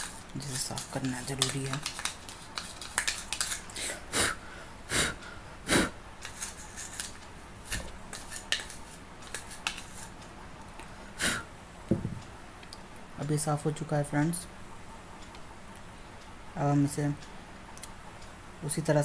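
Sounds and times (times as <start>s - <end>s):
toothbrush scrubbing plastic: 0.0s - 3.8s, 6.2s - 10.2s.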